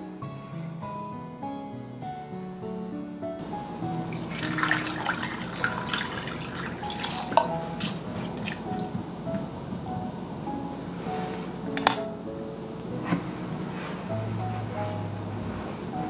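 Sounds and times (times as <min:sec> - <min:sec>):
light background music: 0:00.0 - 0:16.0
water pouring and splashing: 0:03.4 - 0:09.4.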